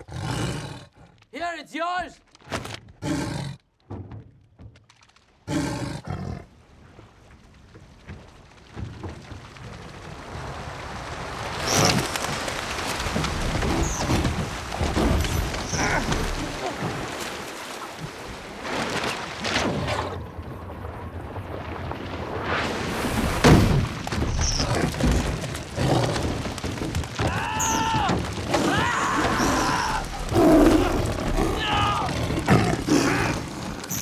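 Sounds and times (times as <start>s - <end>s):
loud cries: 27.2s - 30.2s.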